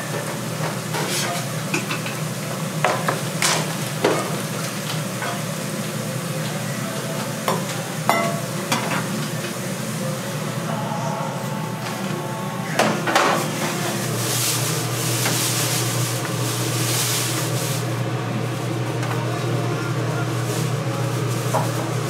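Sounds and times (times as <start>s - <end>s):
food sizzling: 0.4s - 22.0s
utensils clinking on pots: 7.4s - 9.1s.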